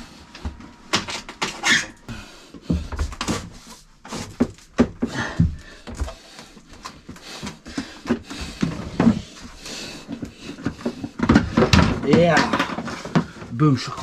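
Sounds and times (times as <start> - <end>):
hose knocking and scraping: 2.6 - 13.7
hose fittings bumping wooden panels: 10.5 - 13.5.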